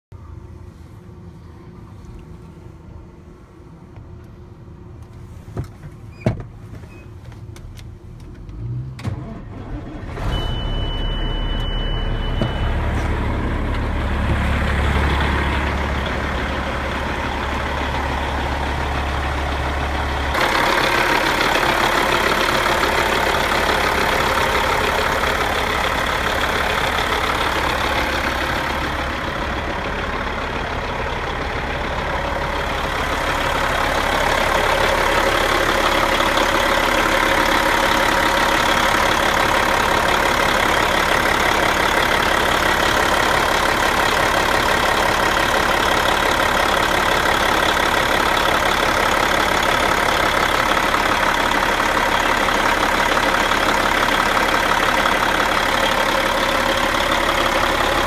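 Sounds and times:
diesel engine starting and idling: 0.2 - 58.0
high steady tone: 10.3 - 13.0.

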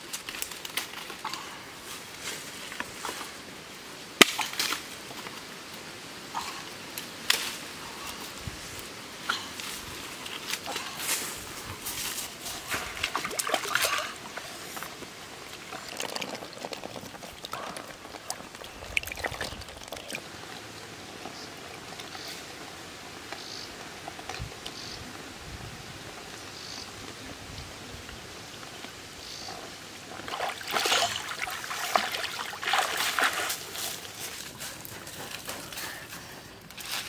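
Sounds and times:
feet splashing through water: 12.5 - 14.5, 30.2 - 34.2
water trickling and pouring: 15.4 - 20.3, 30.2 - 33.6.

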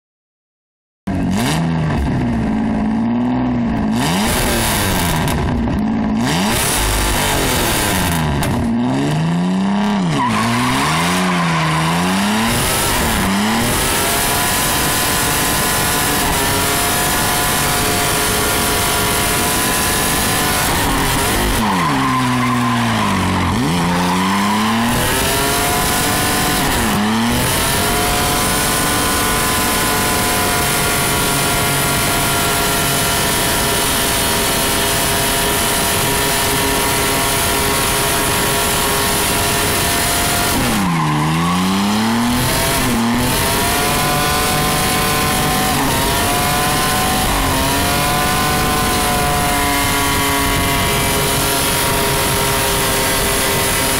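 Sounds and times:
engine revving hard: 1.2 - 2.2, 3.1 - 53.9
tires squealing: 9.8 - 52.6.

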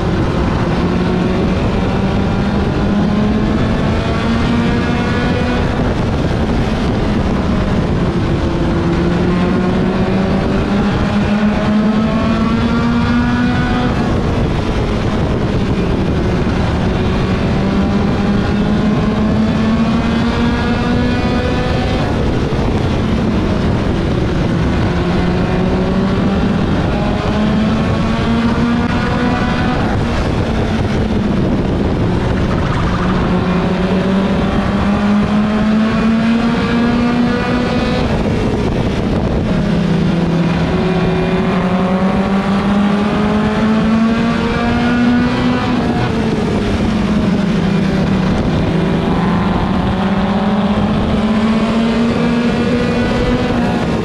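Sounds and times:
race car engine revving: 0.0 - 54.0
wind rushing over microphone: 0.0 - 54.0.

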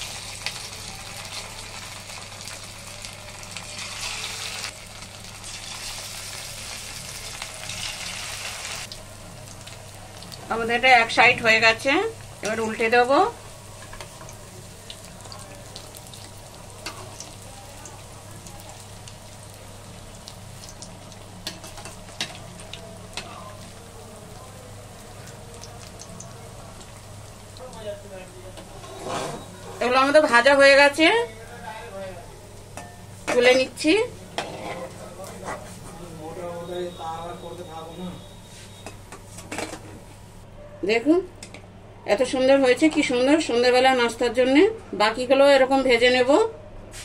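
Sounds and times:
food deep-frying in oil: 0.0 - 35.2.

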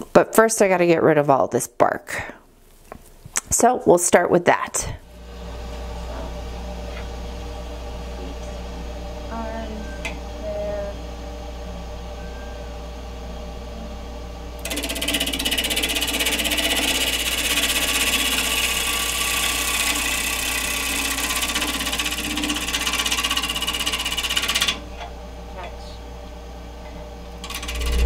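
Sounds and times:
chisel scraping spinning wood: 14.6 - 24.8, 27.5 - 28.0
wood lathe humming: 14.6 - 24.8, 27.4 - 28.0.

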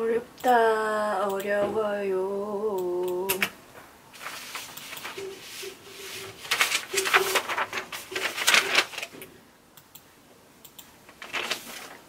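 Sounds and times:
paper sheets rustling: 4.1 - 9.3, 11.1 - 12.0.

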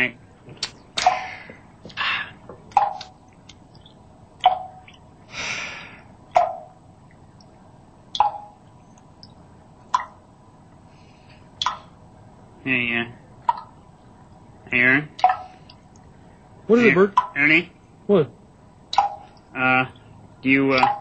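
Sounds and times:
water drops plinking: 2.7 - 3.2, 3.8 - 5.0, 6.4 - 6.7, 8.2 - 8.6, 9.2 - 10.2, 15.2 - 15.5, 17.1 - 17.4, 18.9 - 19.4, 20.7 - 21.0.

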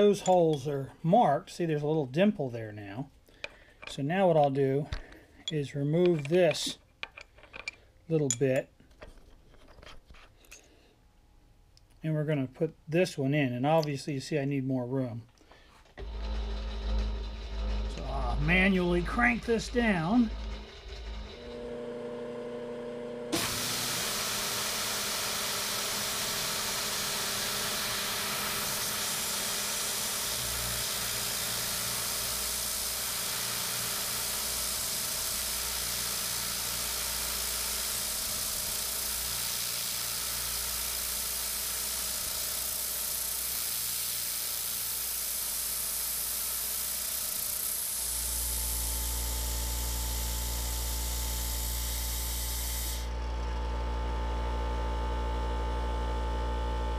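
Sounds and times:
milling machine humming: 16.0 - 56.9
coolant spray nozzle hissing: 24.2 - 48.1.

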